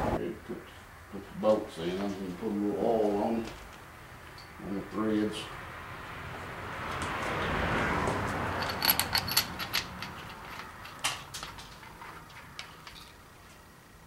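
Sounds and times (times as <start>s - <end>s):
rustle of handling bolts: 8.5s - 13.7s
sharp metallic clinks: 8.6s - 13.2s.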